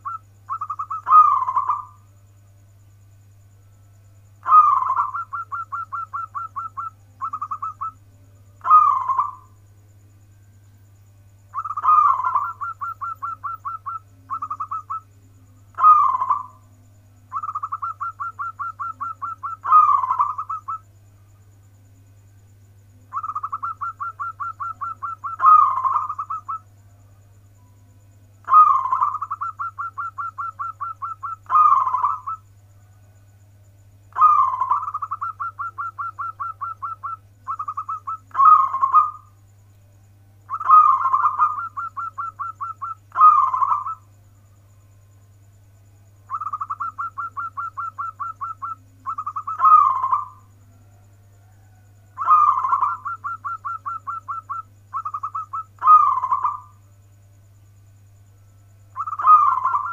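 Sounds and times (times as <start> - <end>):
dove cooing: 0.0 - 2.1, 4.4 - 9.6, 11.5 - 16.7, 17.3 - 20.9, 23.0 - 26.7, 28.4 - 32.4, 34.1 - 39.4, 40.5 - 44.1, 46.3 - 56.8, 58.9 - 59.9.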